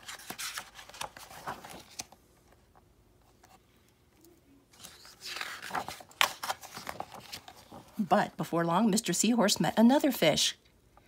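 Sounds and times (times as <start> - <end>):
book pages rustling: 0.0 - 3.6, 4.7 - 8.1.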